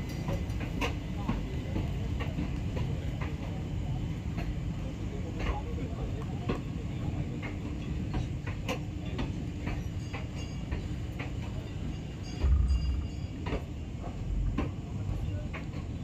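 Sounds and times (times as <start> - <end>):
train coaches rumbling past: 0.0 - 16.0
low thud: 12.4 - 13.2.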